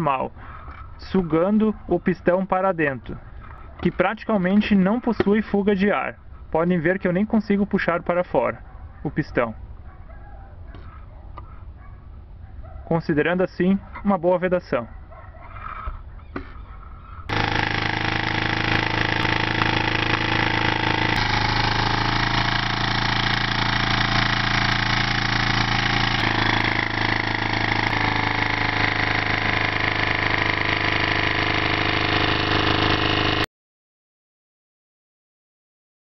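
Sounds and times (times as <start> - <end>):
engine mechanical hum: 17.2 - 33.5.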